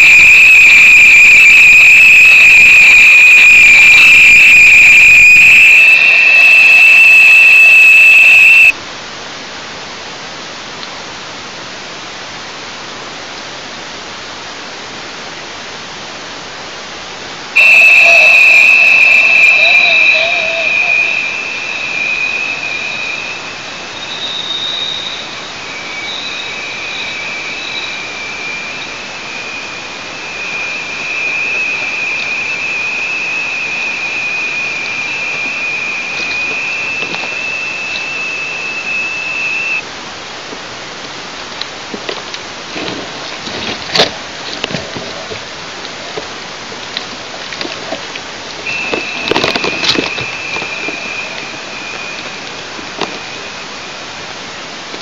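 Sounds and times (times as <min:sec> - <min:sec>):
high whistling tone: 0:00.0 - 0:08.8, 0:17.6 - 0:39.8, 0:48.7 - 0:54.3
steady hiss: 0:00.0 - 0:44.5, 0:45.4 - 0:55.0.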